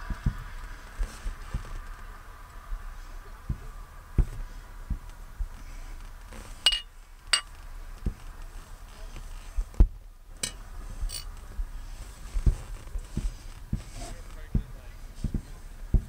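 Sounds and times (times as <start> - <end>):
distant fireworks booming: 0.0 - 5.6, 12.4 - 16.0.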